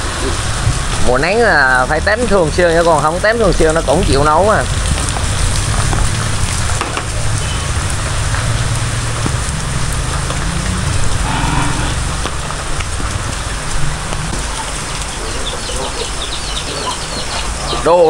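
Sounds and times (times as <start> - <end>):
continuous low rumble: 0.0 - 17.7
steady rain falling: 0.0 - 18.0.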